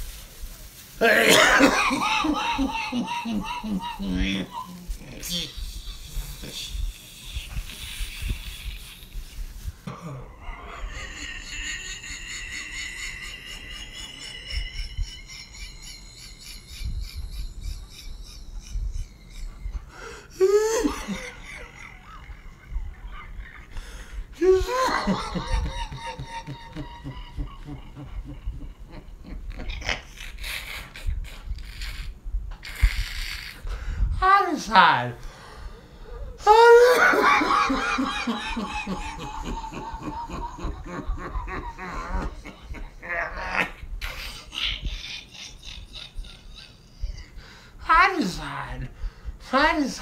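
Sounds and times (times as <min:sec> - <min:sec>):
man's hoarse cough-like outburst: 0:01.0 - 0:01.9.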